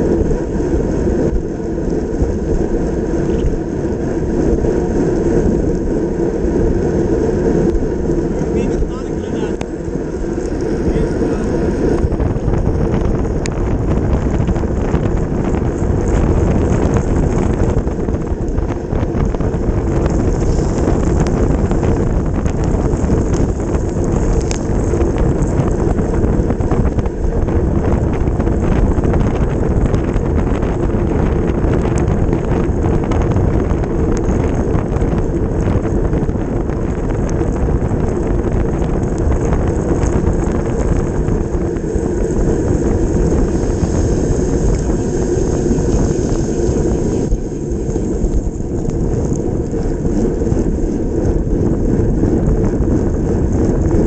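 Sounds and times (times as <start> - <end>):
bicycle road noise: 0.0 - 54.0
wind rushing over microphone: 0.0 - 54.0.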